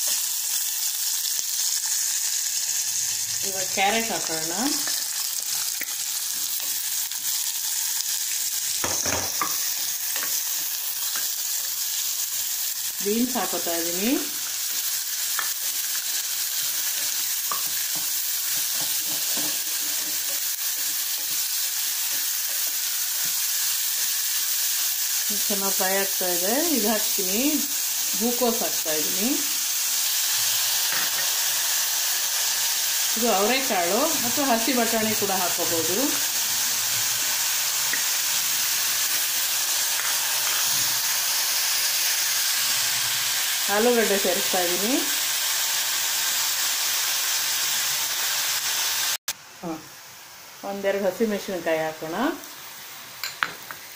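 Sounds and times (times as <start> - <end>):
vegetables sizzling in oil: 0.0 - 53.9
spatula scraping pan: 16.6 - 23.4.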